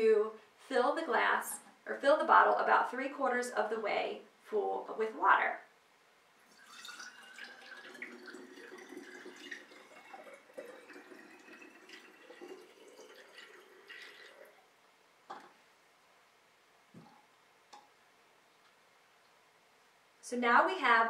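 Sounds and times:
water trickling into bottle: 6.4 - 14.7.

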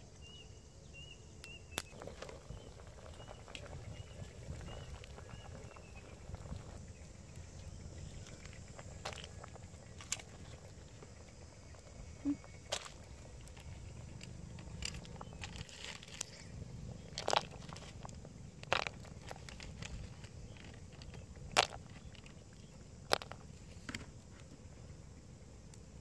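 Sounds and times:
low steady background: 0.0 - 26.0
wood fire crackling: 1.8 - 22.2.

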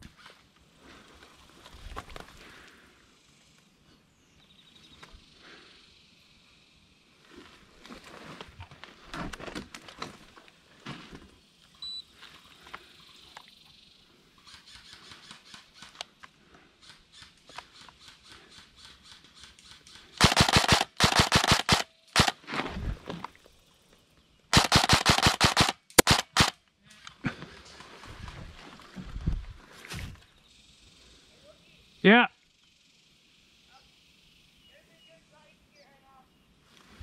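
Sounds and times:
airsoft rifle full-auto bursts: 20.2 - 22.4, 24.5 - 26.6
distant airsoft fire: 20.2 - 22.4, 24.5 - 26.6.

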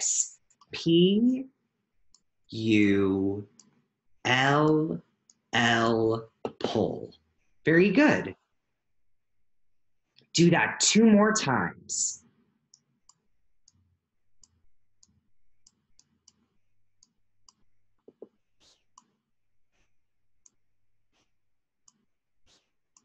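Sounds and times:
computer mouse clicks: 0.3 - 0.8, 3.5 - 3.8, 12.6 - 23.0.

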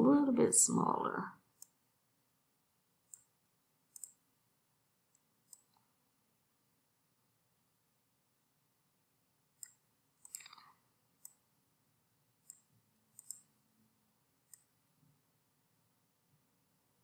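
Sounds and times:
mouse buttons clicking: 1.6 - 1.8, 3.1 - 4.3, 5.1 - 5.8, 9.6 - 11.4, 12.4 - 13.6, 14.4 - 14.8.

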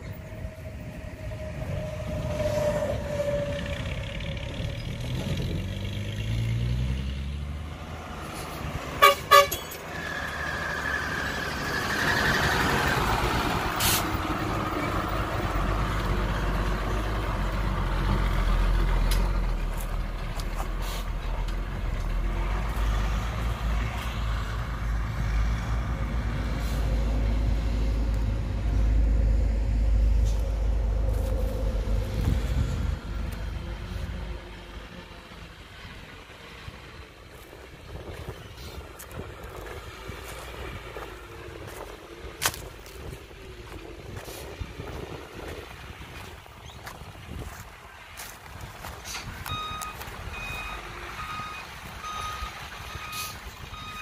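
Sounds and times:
truck engine accelerating: 0.0 - 54.0
truck horn toots: 8.9 - 10.0.

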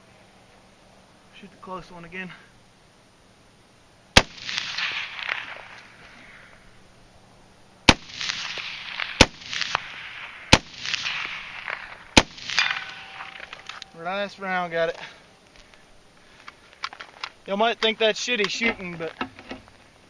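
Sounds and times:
rifle shots with echo: 4.2 - 6.0, 7.9 - 13.9.

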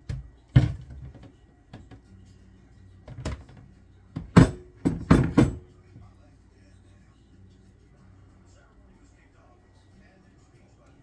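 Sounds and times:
kitchenware knocking and clattering: 0.0 - 2.0, 3.1 - 5.7.

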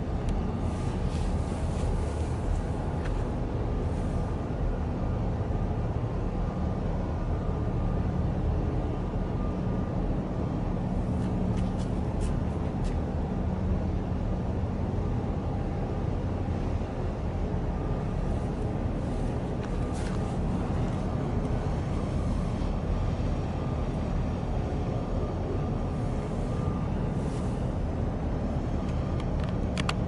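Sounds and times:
low engine rumble: 0.0 - 30.0.

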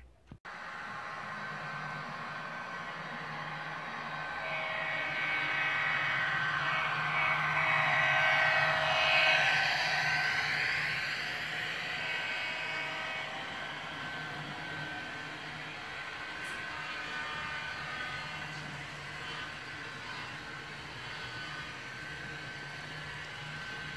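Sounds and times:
model train rolling on track: 0.6 - 23.9.

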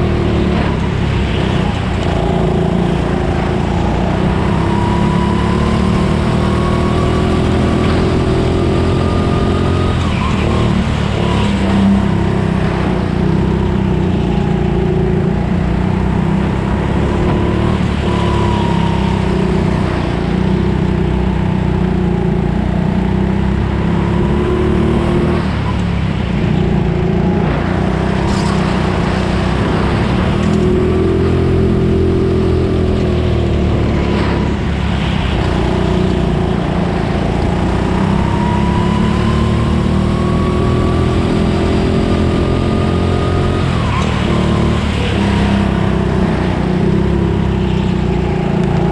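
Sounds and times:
go-kart engine revving: 27.8 - 48.9.

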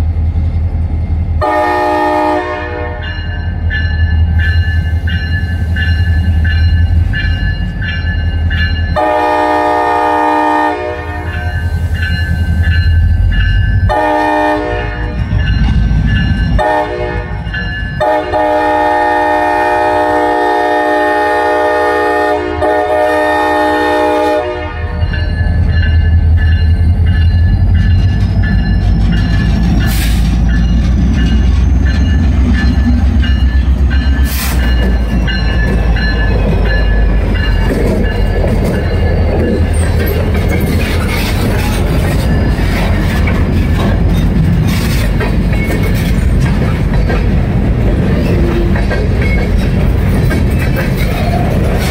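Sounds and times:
diesel locomotive engine rumbling: 0.0 - 51.9
train horn blasts: 1.4 - 3.2, 9.0 - 11.7, 13.9 - 15.3, 16.5 - 25.1
train wheel squeal: 11.3 - 13.9, 24.9 - 51.9.

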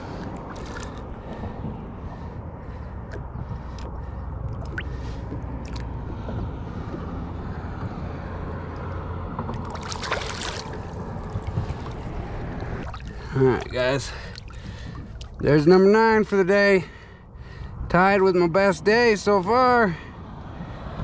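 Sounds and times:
fish splashing: 0.0 - 1.1, 3.6 - 6.2, 8.8 - 15.4
water sloshing: 0.0 - 7.7, 8.7 - 16.4
low rumble: 0.0 - 15.6.

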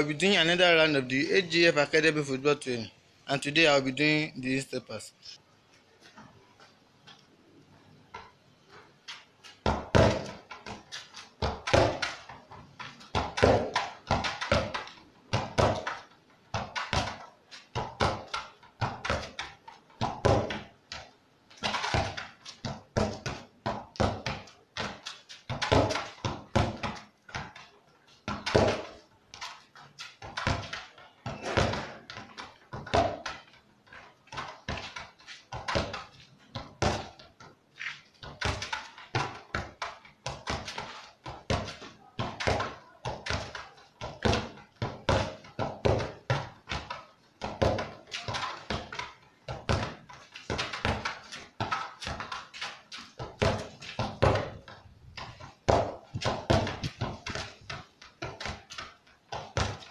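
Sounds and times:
football thudding against wall: 9.6 - 27.6, 28.3 - 29.0, 30.2 - 33.6, 34.3 - 37.2, 38.2 - 59.9.

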